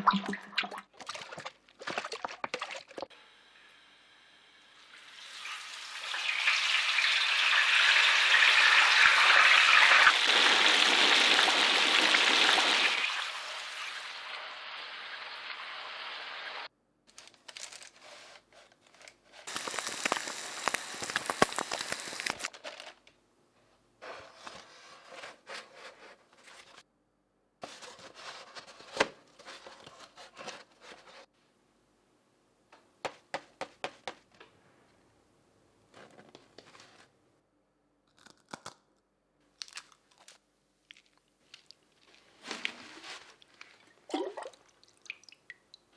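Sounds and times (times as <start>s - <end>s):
deep-fat frying sizzle: 4.5s - 16.7s, 19.5s - 22.5s
fries crackling in cardboard carton: 19.4s - 22.9s.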